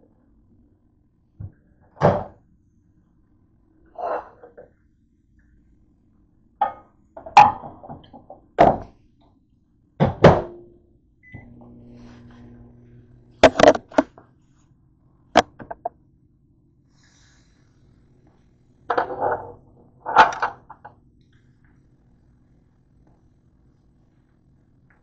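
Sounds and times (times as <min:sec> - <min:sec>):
microwave oven humming: 0:05.3 - 0:25.0.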